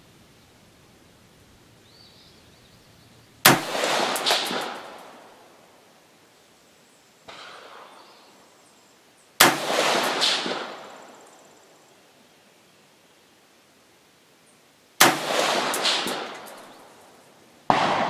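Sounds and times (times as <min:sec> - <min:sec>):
rifle shots with echo: 0:03.4 - 0:05.4, 0:09.4 - 0:11.2, 0:15.0 - 0:17.0, 0:17.7 - 0:18.0.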